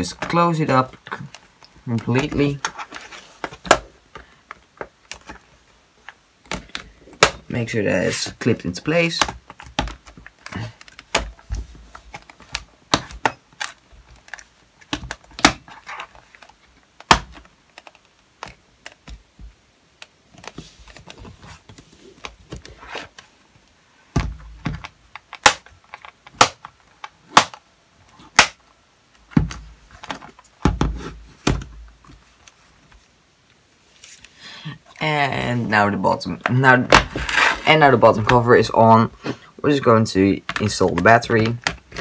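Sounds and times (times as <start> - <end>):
dull thumps of handling: 29.3 - 32.3.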